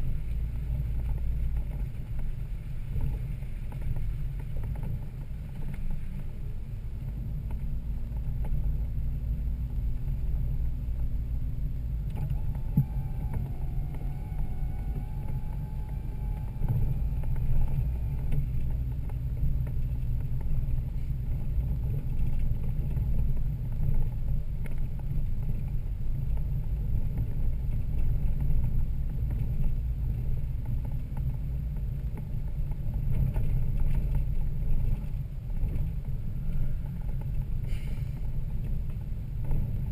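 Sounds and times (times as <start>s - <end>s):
faint wavering whine: 0.0s - 23.2s
engine and drivetrain rumble: 0.0s - 39.9s.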